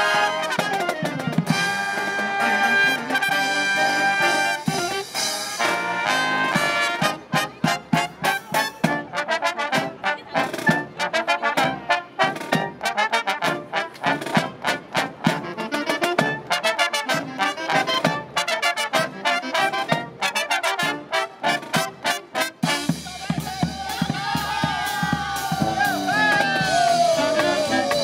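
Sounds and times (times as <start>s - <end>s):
brass marching band playing: 0.0s - 28.0s.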